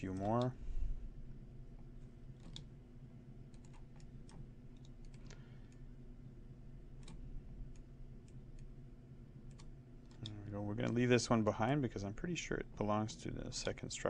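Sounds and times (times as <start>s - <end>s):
low hum: 0.0s - 14.0s
computer mouse clicks: 2.4s - 2.7s, 3.5s - 5.8s, 7.0s - 8.7s, 9.4s - 11.0s.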